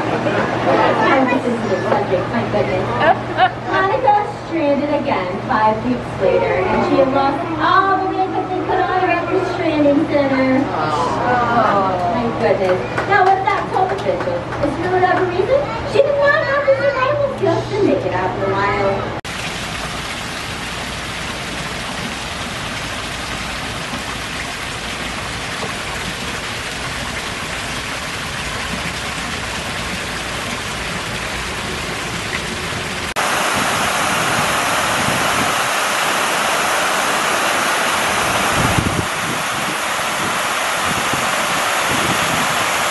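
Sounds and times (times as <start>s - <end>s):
fountain water splashing: 19.3s - 42.9s
waterfall rushing: 19.3s - 42.9s.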